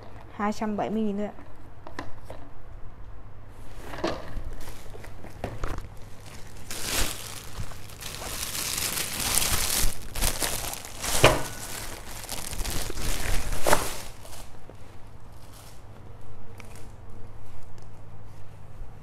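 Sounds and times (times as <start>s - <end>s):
sharp plastic crackles: 4.0s - 15.9s
plastic bag crinkling: 5.7s - 15.9s.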